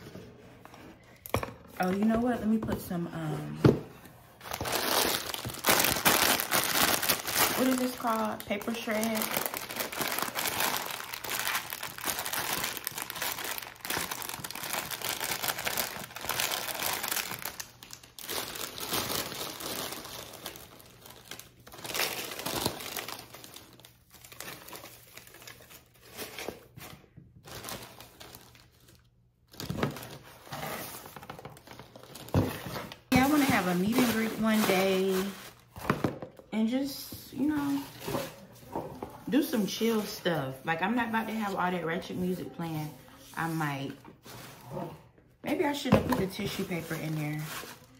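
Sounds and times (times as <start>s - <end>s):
paper shred and plastic bag rustling: 4.4s - 26.7s, 29.6s - 35.7s, 46.4s - 47.9s.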